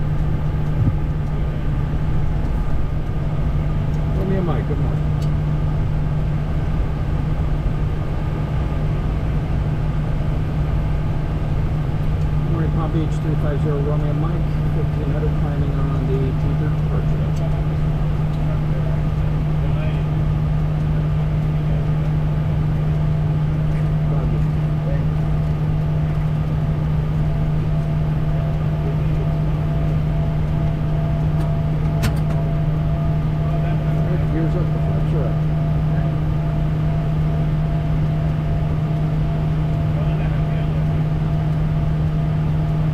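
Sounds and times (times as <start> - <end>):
constant low drone: 0.0 - 42.9
constant low hum: 0.0 - 42.9
jet engines running: 0.0 - 42.9.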